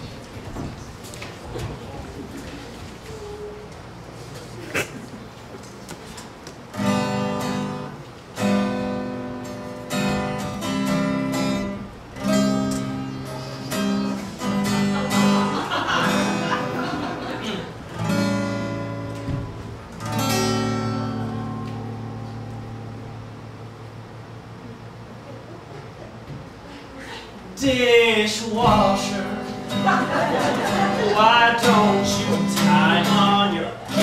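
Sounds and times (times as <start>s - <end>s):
acoustic guitar strumming chords: 6.7s - 24.5s, 27.6s - 34.0s.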